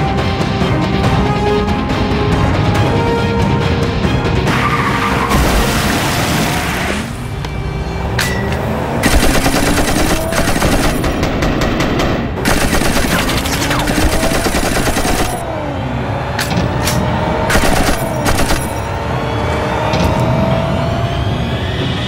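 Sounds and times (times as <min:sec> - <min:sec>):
automatic gunfire: 0:09.0 - 0:15.4, 0:17.5 - 0:18.9.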